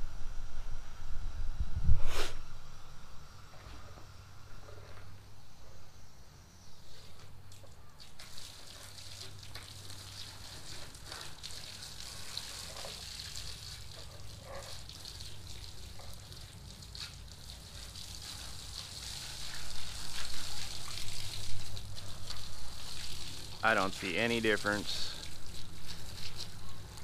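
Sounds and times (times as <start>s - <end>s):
hose water spraying: 6.8s - 27.0s.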